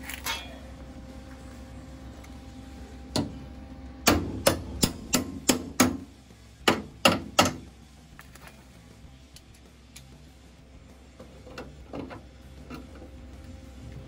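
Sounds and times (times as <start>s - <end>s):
hammer striking steel: 4.0s - 7.7s.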